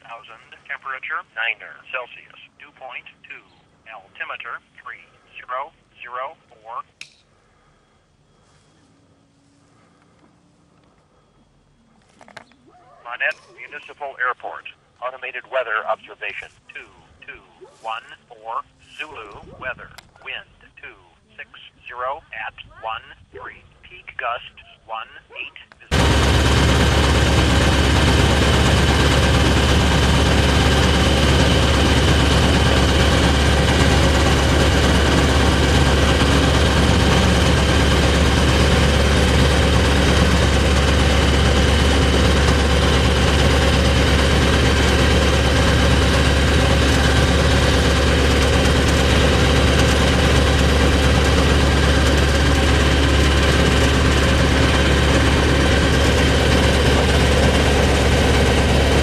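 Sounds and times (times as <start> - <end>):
light aircraft engine and propeller: 25.9 - 59.0.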